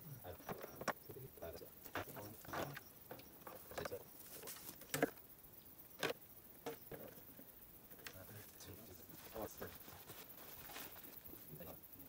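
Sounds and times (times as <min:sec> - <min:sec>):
rustling of plastic hoses: 0:09.1 - 0:11.2.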